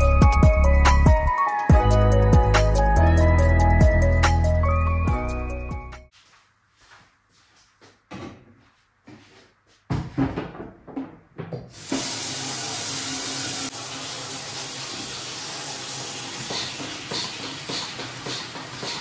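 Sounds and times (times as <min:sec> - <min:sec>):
objects knocking and clattering: 0:09.9 - 0:11.8
water running from tap: 0:11.7 - 0:19.0.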